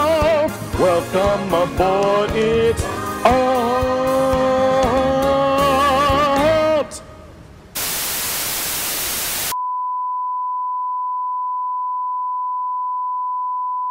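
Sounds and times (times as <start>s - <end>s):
television static hiss: 7.4s - 9.6s.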